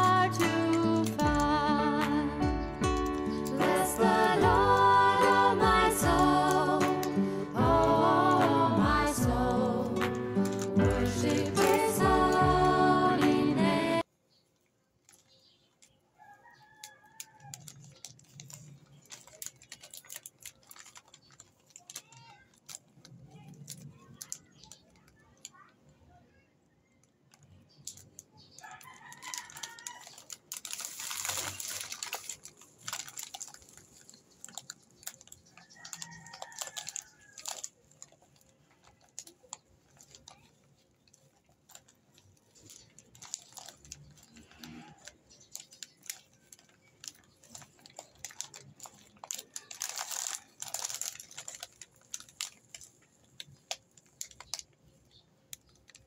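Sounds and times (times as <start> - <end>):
plastic packets crinkling: 0.0 - 13.5, 14.3 - 25.7, 27.0 - 56.0
rooster crowing: 28.6 - 30.2, 35.7 - 37.5.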